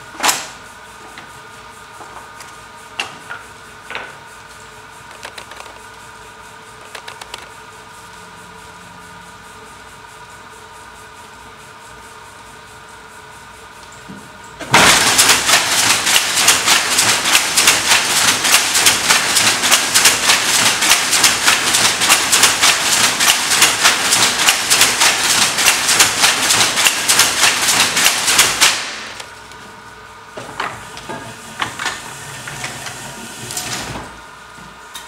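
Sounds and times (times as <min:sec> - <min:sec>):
weaving loom clattering: 0:14.6 - 0:29.2.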